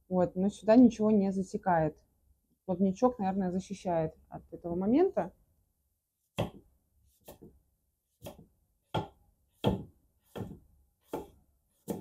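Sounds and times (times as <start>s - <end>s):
knife slicing an apple: 6.3s - 12.0s
blade knocking on wooden board: 8.2s - 12.0s.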